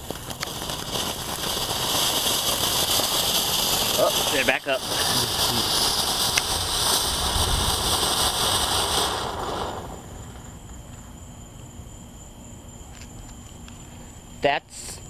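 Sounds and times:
firework fountain hissing: 0.0s - 12.0s.

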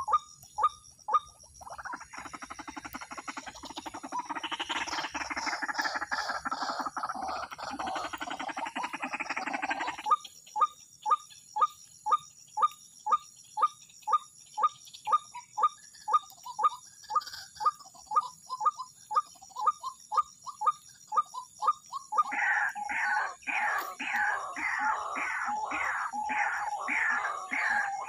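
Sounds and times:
bird calling repeated notes: 17.7s - 28.0s
high-pitched insect drone: 21.6s - 28.0s
raspy chorus: 22.2s - 28.0s.

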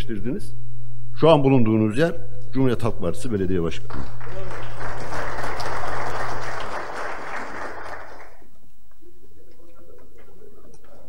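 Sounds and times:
applause: 3.9s - 8.5s.

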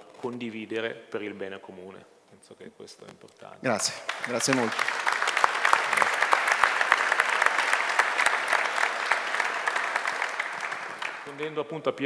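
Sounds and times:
audience applauding: 3.8s - 11.4s.

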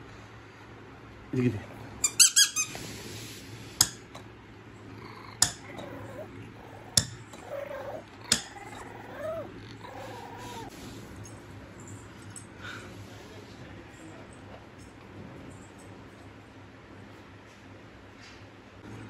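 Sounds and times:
puppy whimpering: 5.0s - 10.7s.

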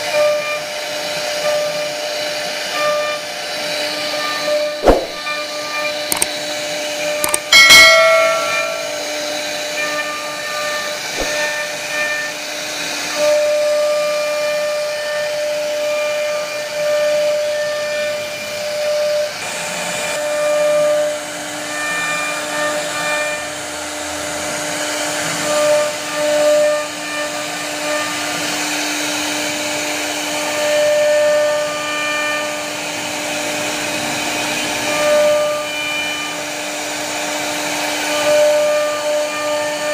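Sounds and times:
router spindle whine: 0.0s - 39.9s
sharp ringing: 7.4s - 9.5s.

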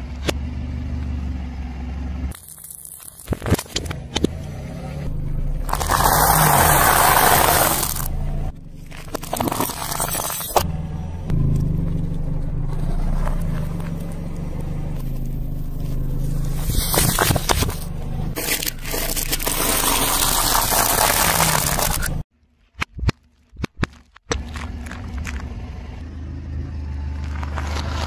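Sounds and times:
low car hum: 0.0s - 22.6s, 23.2s - 28.0s
tyre crushing brittle food: 16.6s - 17.8s, 18.4s - 22.2s.

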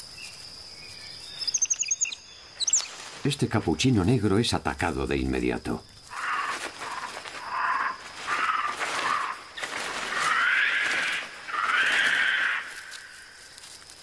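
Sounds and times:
monkey rasping cries: 10.1s - 12.9s.

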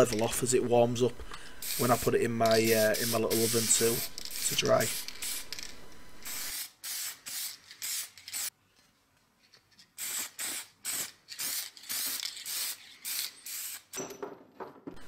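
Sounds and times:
aerosol can spraying: 1.6s - 8.5s, 10.0s - 13.9s.

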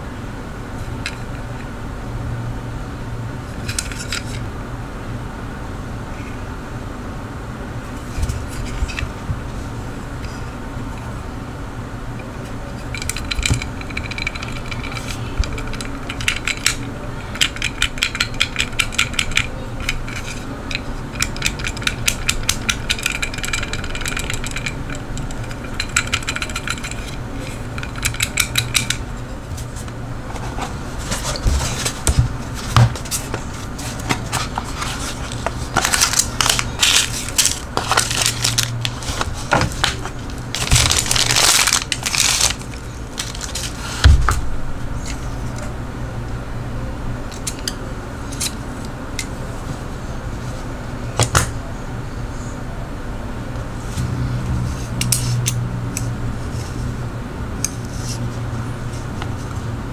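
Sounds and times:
scraping rustles: 24.3s - 44.4s.

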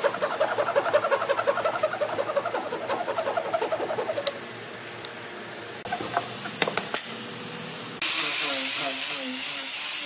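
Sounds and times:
handsaw cutting wood: 0.0s - 4.3s.

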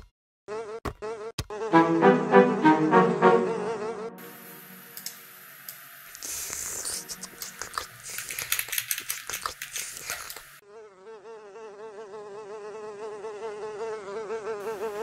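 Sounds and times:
housefly buzzing: 3.4s - 8.2s, 9.9s - 15.0s.

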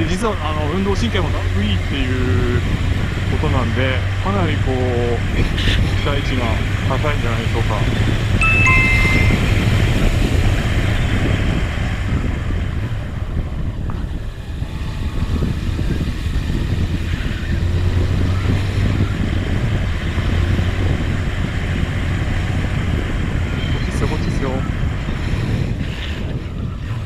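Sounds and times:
wind rushing over microphone: 0.0s - 27.0s
motorcycle engine cruising: 9.0s - 27.0s.

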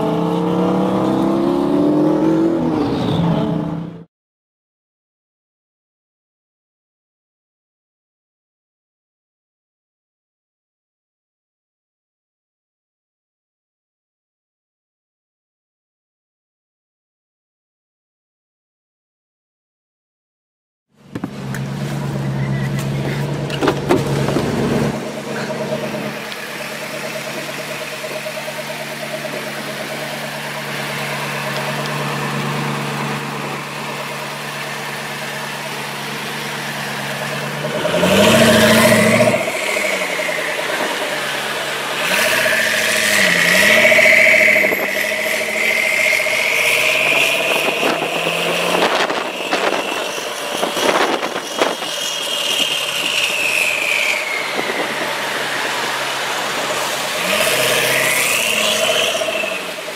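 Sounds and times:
car engine revving: 0.0s - 4.1s, 21.0s - 59.9s
rising engine whine: 21.0s - 59.9s.

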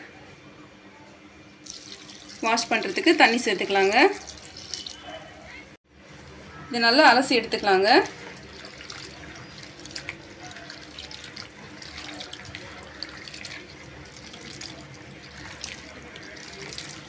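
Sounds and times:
hands sloshing vegetables in water: 7.9s - 17.0s.

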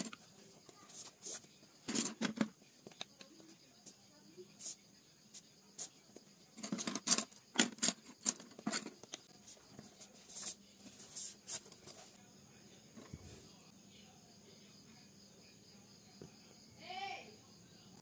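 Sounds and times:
pencils rubbing on canvas: 0.0s - 2.3s, 7.8s - 12.2s
wooden pencils clicking: 6.6s - 9.3s.

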